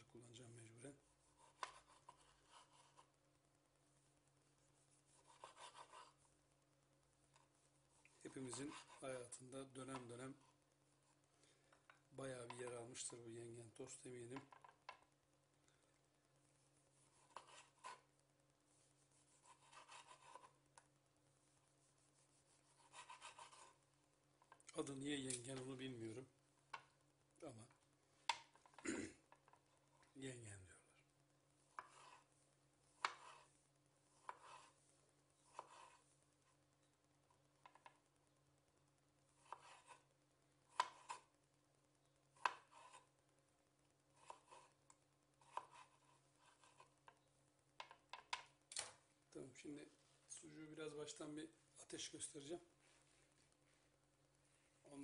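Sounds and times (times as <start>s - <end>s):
knife scraping board: 35.5s - 36.0s.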